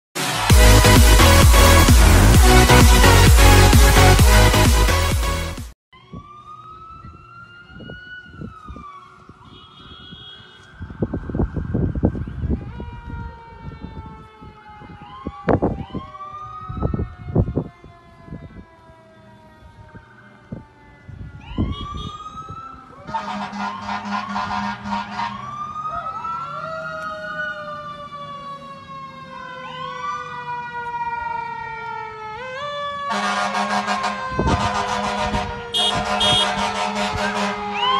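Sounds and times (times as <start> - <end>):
horn blaring: 0.2 - 5.7, 23.1 - 25.6, 33.1 - 37.9
emergency vehicle sirens wailing: 0.2 - 37.9.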